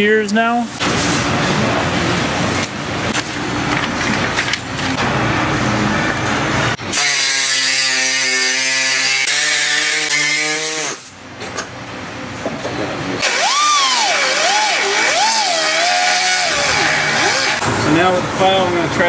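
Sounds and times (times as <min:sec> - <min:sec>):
masking tape tearing and peeling: 0:06.9 - 0:11.1, 0:13.2 - 0:17.6
pneumatic tool running with hiss: 0:06.9 - 0:11.2, 0:13.2 - 0:17.6.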